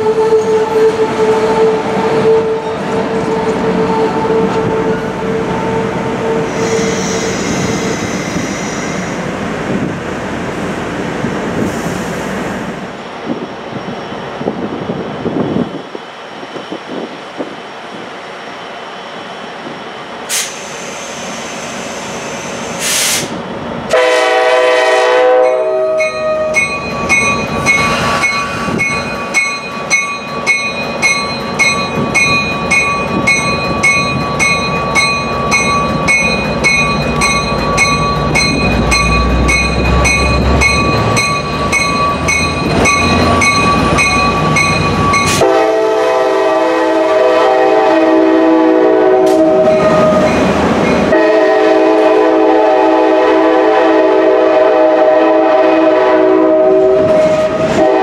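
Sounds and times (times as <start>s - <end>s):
locomotive horn: 0.0s - 7.4s, 23.9s - 26.6s, 45.2s - 50.4s, 51.1s - 58.0s
locomotive bell ringing: 25.4s - 45.6s, 49.6s - 51.2s.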